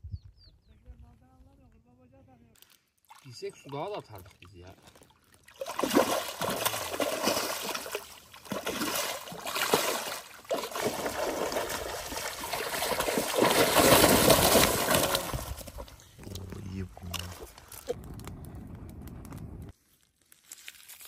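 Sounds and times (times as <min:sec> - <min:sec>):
water splashing and trickling: 0:02.6 - 0:18.3.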